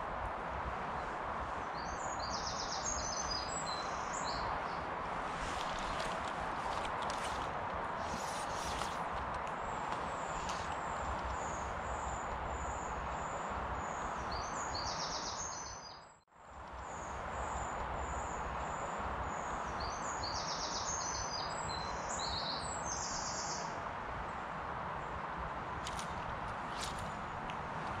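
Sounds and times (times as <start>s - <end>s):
river water rushing: 2.8s - 11.8s
small bird singing trills: 13.9s - 16.1s.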